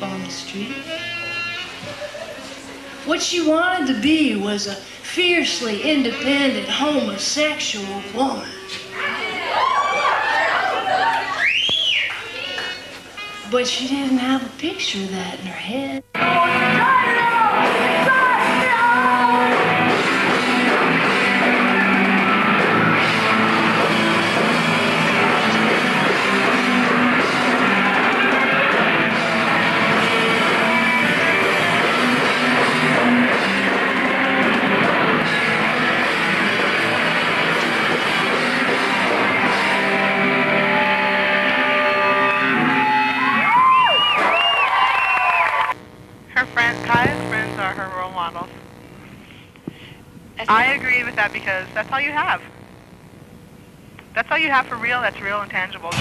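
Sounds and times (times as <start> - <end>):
distorted electric guitar: 0.0 - 3.0, 16.1 - 44.4, 45.0 - 56.0
drums: 0.0 - 4.7, 16.1 - 54.2, 54.8 - 56.0
bass guitar: 16.1 - 44.5, 45.6 - 53.2.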